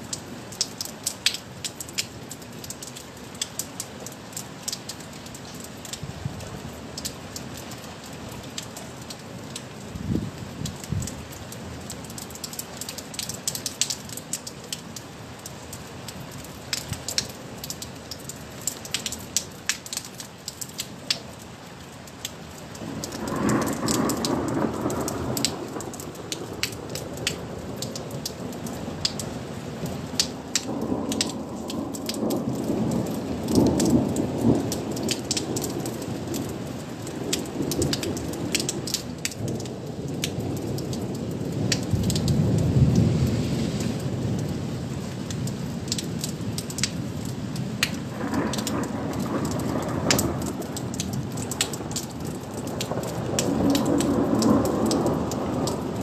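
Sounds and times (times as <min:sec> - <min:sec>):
rain falling: 0:00.0 - 0:56.0
raindrops ticking on surface: 0:00.0 - 0:56.0
thunder rumbling: 0:22.9 - 0:27.8, 0:30.6 - 0:36.6, 0:48.1 - 0:56.0.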